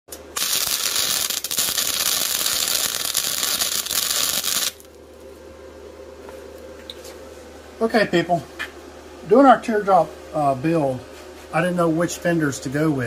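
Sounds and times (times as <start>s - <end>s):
welding arc crackling: 0.1s - 5.0s
low steady hum: 0.1s - 13.0s.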